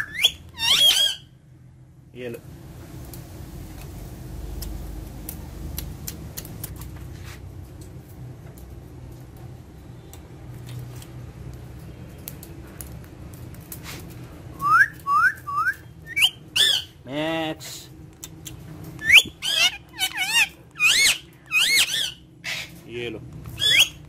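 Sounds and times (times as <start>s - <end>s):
parakeet whistling and chattering: 0.0s - 1.3s, 14.6s - 17.0s, 18.3s - 22.8s, 23.6s - 24.0s
low room hum: 0.0s - 24.0s.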